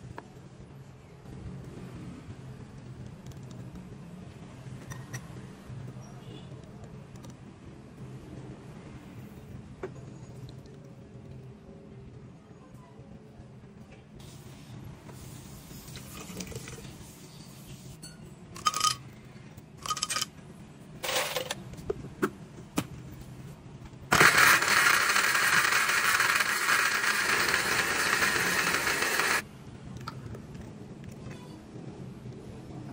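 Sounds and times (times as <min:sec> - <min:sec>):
lid clinking against glass jar: 0:18.0 - 0:19.0, 0:19.8 - 0:20.3
blender running: 0:24.1 - 0:29.4.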